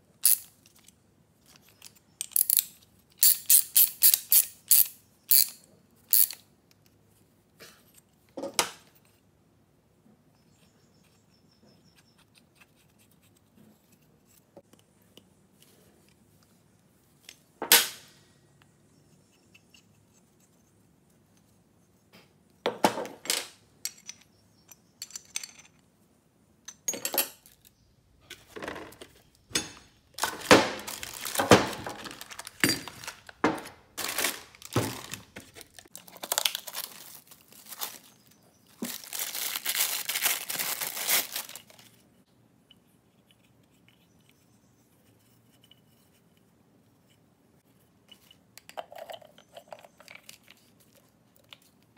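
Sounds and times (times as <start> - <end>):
plastic bags crinkling: 30.2 - 41.9.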